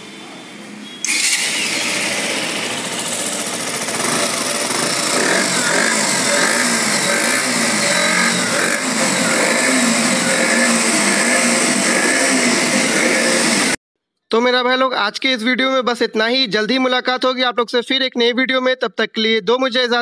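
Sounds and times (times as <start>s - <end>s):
motorcycle engine starting and revving: 1.0s - 13.8s.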